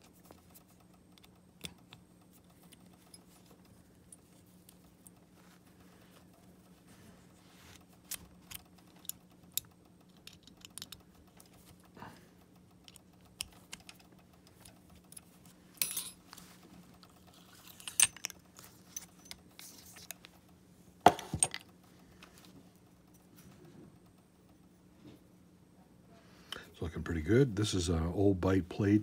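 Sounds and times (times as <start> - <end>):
metal clicks and clinks: 8.5 - 11.2, 12.8 - 16.4, 17.0 - 20.1.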